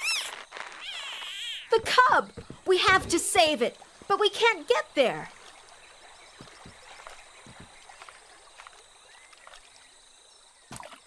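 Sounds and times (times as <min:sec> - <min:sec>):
soft water noise: 0:02.0 - 0:11.0
soft knocks: 0:06.3 - 0:08.0.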